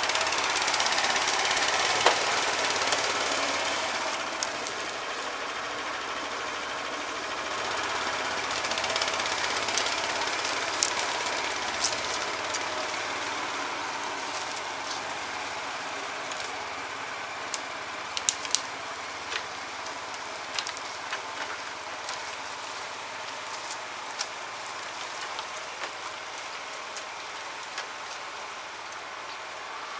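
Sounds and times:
sharp clicks and crackles: 0.0 - 4.9, 7.9 - 13.4, 17.4 - 29.6
small engine running: 0.0 - 29.9.

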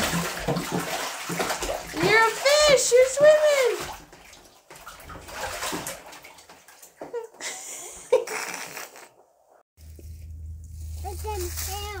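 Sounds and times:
bath water splashing: 0.0 - 8.8.

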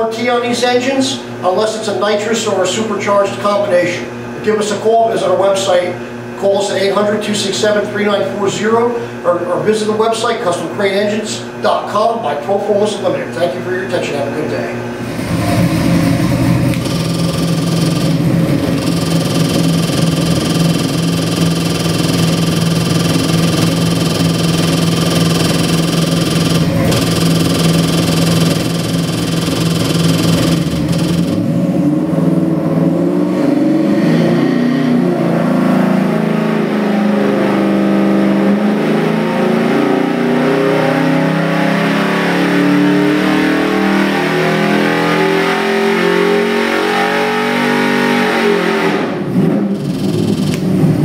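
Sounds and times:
engine idling and revving: 15.0 - 51.0.

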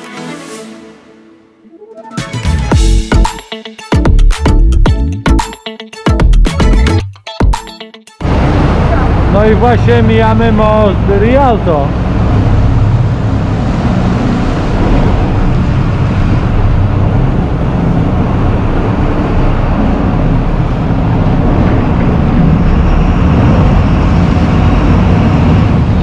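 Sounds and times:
boat engine rumble: 8.2 - 26.0.

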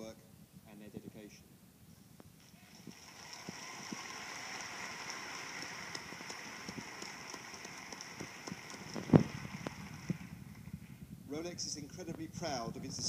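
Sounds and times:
audience applause: 2.5 - 10.7.

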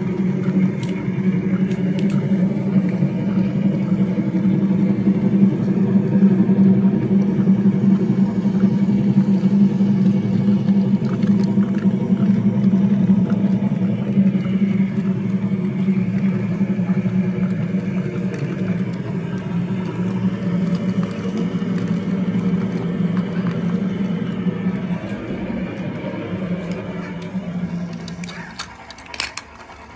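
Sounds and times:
wheels clicking on track: 0.0 - 29.9
toy train motor whirring: 26.6 - 29.9.

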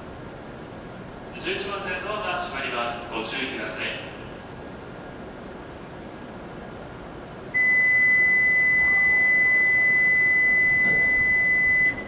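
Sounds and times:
high-pitched electronic warning tone: 7.6 - 12.0.

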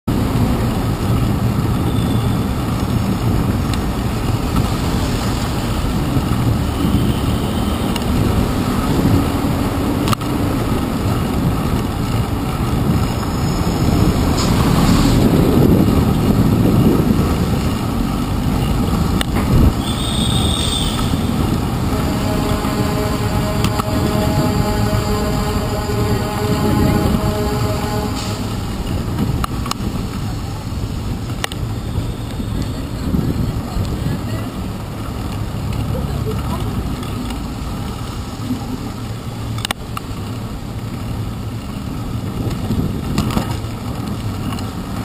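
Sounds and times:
tyres on wet pavement: 0.1 - 45.0
cars passing close by: 2.4 - 31.8.

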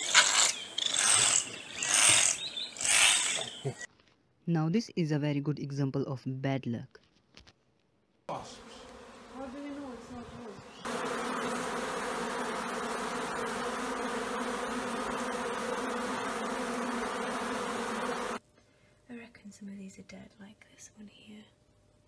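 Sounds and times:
honeybees buzzing: 0.0 - 3.9, 8.3 - 18.4.

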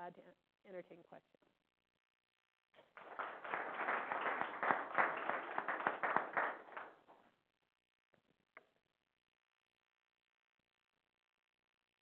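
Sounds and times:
audience applauding: 2.8 - 7.2.

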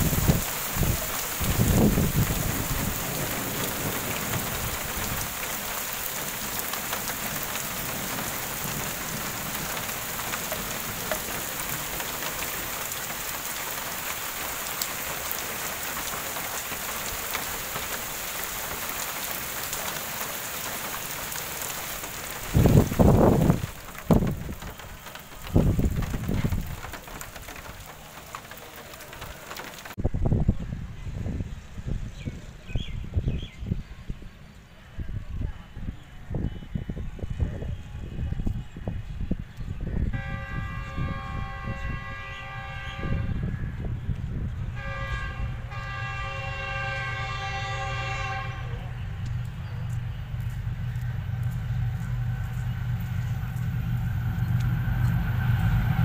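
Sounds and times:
heavy rain on bricks: 0.0 - 30.1, 35.8 - 56.0
low rumbles: 0.0 - 33.9, 47.6 - 56.0.

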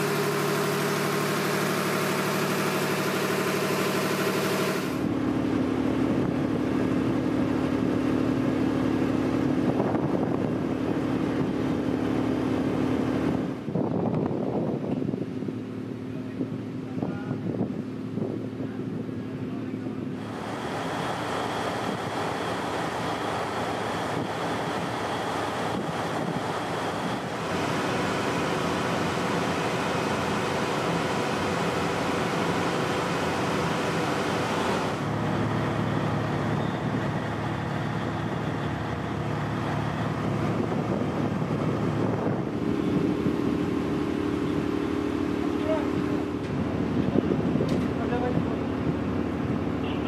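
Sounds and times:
boat engines humming: 0.0 - 50.0
wind noise on microphone: 5.9 - 7.3, 9.4 - 15.7, 16.3 - 19.3, 23.9 - 27.8, 39.9 - 44.8, 46.1 - 49.8
water: 20.0 - 40.2.

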